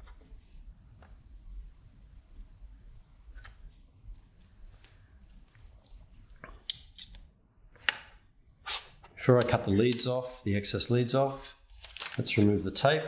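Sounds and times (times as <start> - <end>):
crisp high rustling: 11.7 - 12.9.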